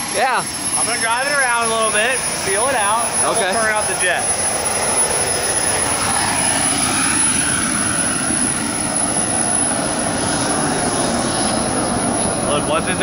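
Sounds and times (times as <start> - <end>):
mini jet turbine running: 0.0 - 13.0.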